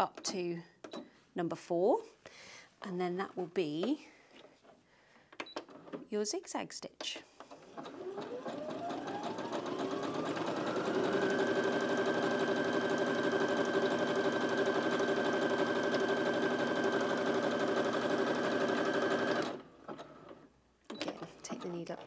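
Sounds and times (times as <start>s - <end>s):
sewing machine motor whine: 7.6s - 20.4s.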